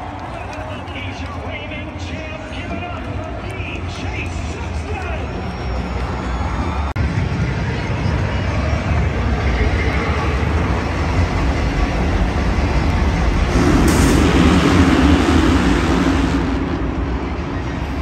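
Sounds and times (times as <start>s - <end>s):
moving vehicle rumble: 5.3s - 18.0s.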